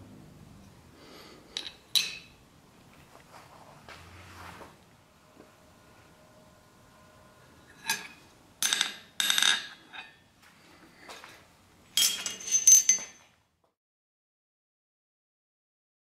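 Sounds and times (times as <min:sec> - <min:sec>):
steel tools clinking on anvil: 0:01.6 - 0:02.4, 0:07.7 - 0:10.2, 0:12.0 - 0:13.3
hammer tapping on anvil: 0:07.7 - 0:10.2.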